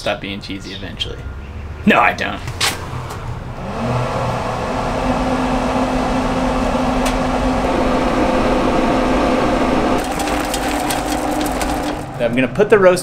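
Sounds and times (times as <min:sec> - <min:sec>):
grill fan motor hum: 0:03.5 - 0:13.0.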